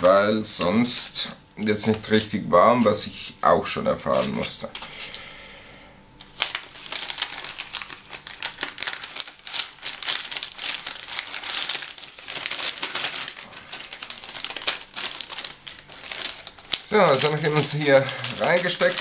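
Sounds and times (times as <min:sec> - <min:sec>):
plastic sleeve crinkling: 0:04.0 - 0:05.2, 0:06.2 - 0:19.0.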